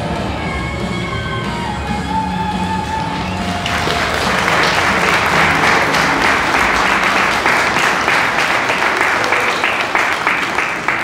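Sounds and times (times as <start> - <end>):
audience applauding: 3.3 - 11.0.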